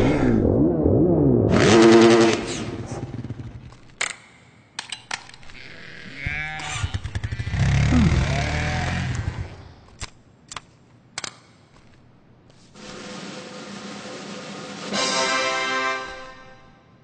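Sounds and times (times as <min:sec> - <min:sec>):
small engine revving: 0:00.0 - 0:03.8, 0:05.6 - 0:09.8.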